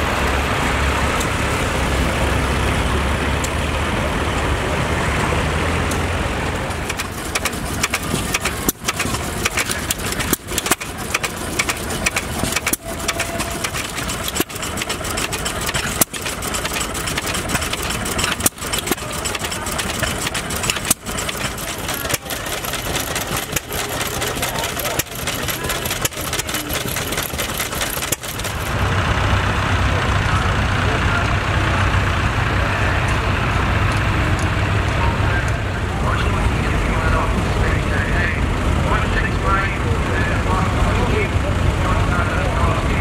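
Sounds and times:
tractor engine driving by: 0.0 - 43.0
small engine firing strokes: 6.8 - 28.7.

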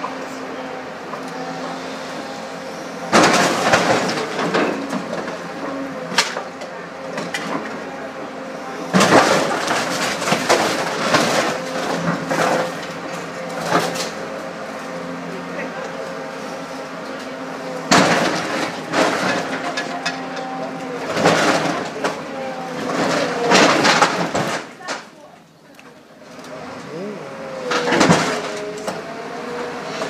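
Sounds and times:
heavy machine engine running: 0.0 - 30.0
metal crunching: 26.2 - 29.2.

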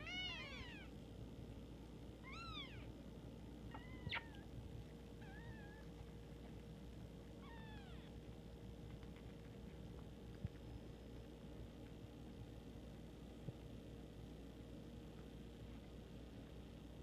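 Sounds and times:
kittens mewing: 0.0 - 1.0, 2.2 - 3.0, 3.7 - 4.6, 5.2 - 6.0.

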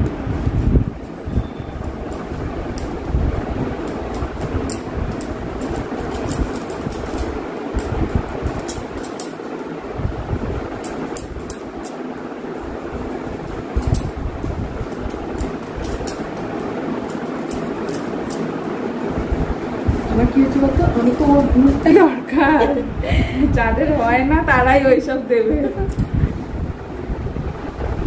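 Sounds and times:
steady rushing noise: 0.0 - 28.0
bangles clinking: 3.8 - 9.6, 13.4 - 18.7.

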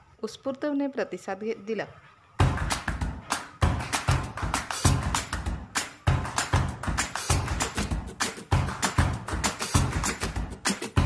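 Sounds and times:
music with percussive beat: 2.4 - 11.0.

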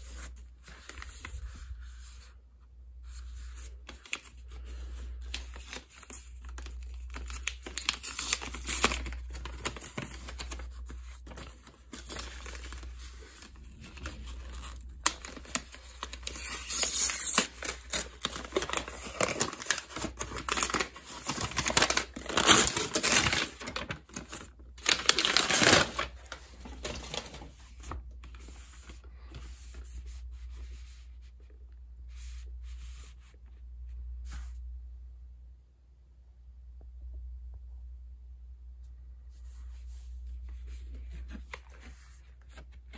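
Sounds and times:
packaging rustling and tearing: 3.9 - 29.0.

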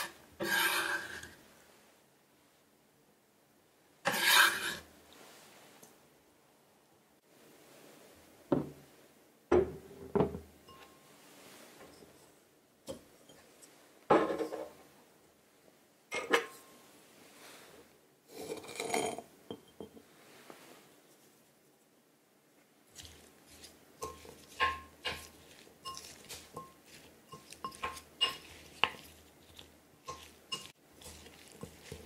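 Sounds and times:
glass bowl clinking: 10.6 - 11.0, 18.5 - 20.0, 24.0 - 32.0.

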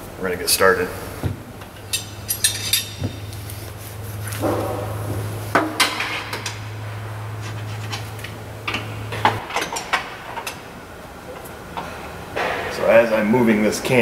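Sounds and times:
low steady hum: 0.0 - 14.0
wrenches clinking on metal: 1.8 - 3.3.

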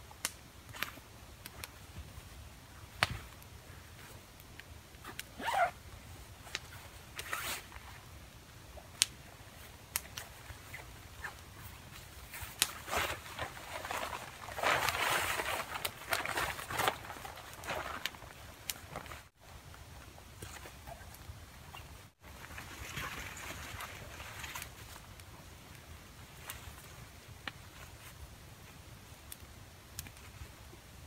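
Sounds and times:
campfire crackling and popping: 0.0 - 21.6, 24.5 - 30.8
tarp rustling: 5.0 - 5.8, 6.6 - 8.1, 9.6 - 19.4.

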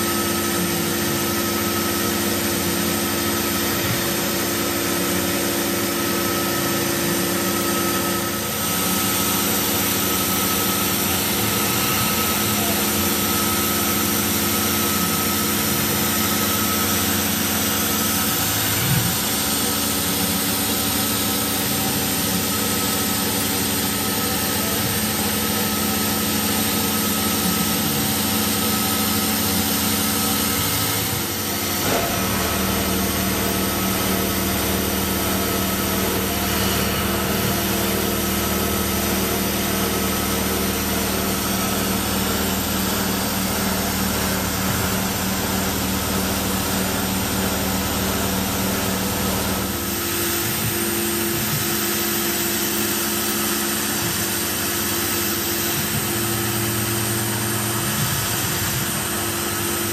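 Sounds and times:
coolant mister hiss: 0.0 - 59.9
milling machine spindle whine: 0.0 - 59.9.

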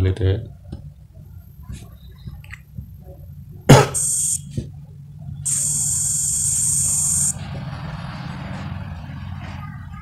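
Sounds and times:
high machine hiss: 3.8 - 4.5, 5.5 - 7.4.

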